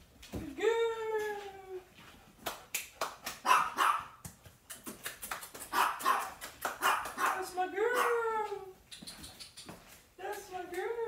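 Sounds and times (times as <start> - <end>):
dog barking: 3.4 - 4.2, 5.7 - 7.4, 8.0 - 8.2.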